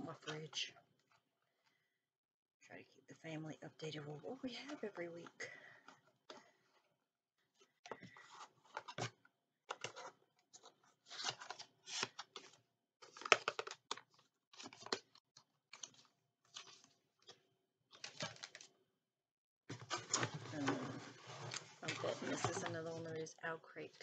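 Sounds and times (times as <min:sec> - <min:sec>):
packaging rustling and crinkling: 0:07.9 - 0:17.4, 0:18.0 - 0:18.7, 0:19.7 - 0:23.3.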